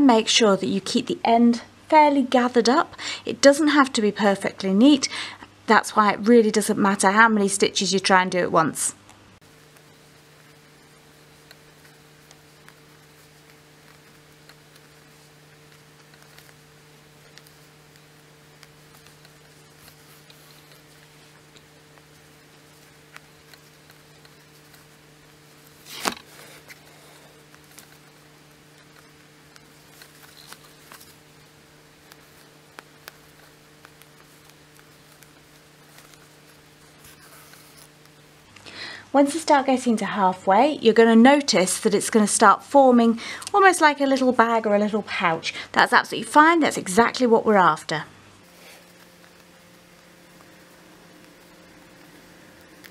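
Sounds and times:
electrical hum: 0.0s - 52.9s
small clicks: 9.0s - 38.7s, 48.4s - 52.9s
needle ticking through fabric: 9.5s - 38.5s.

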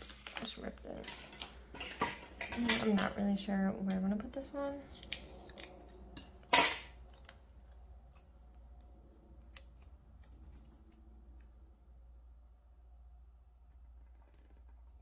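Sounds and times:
scissors snipping paper: 7.1s - 11.5s.

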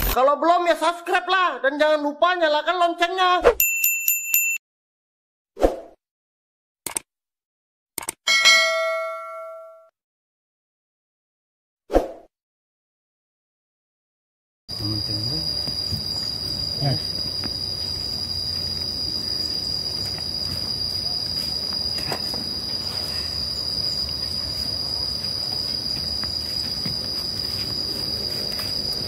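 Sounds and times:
high-pitched insect drone: 14.7s - 29.0s.

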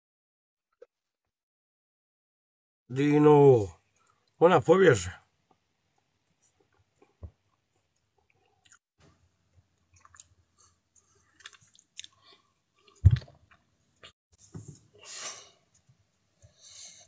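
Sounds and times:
mouth clicks and smacks: 9.8s - 10.4s, 11.0s - 14.1s
short breath out: 15.0s - 15.6s.

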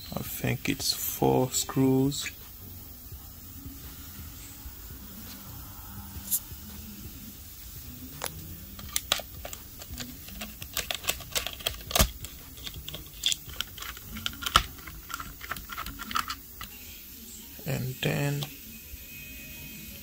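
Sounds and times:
screwdriver clicking on plastic: 8.8s - 16.7s.

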